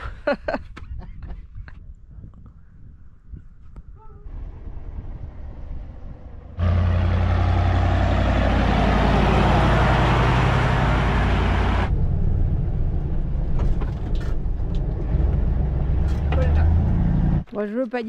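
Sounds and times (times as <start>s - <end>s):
wind and road noise: 0.0s - 18.0s
vehicle engine drone: 4.2s - 17.5s.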